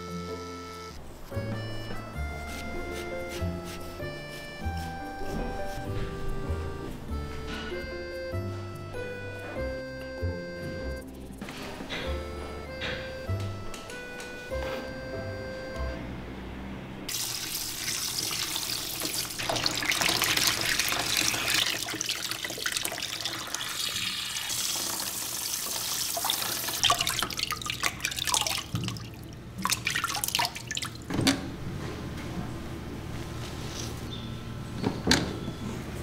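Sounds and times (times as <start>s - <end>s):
shower hose water splashing: 17.1s - 31.1s
water dripping: 17.1s - 31.1s.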